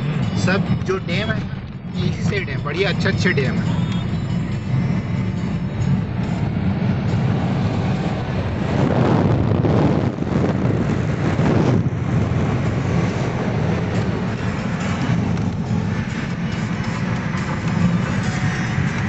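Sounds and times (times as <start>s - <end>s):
car rumbling on road: 0.0s - 19.0s
wind buffeting microphone: 3.6s - 18.2s.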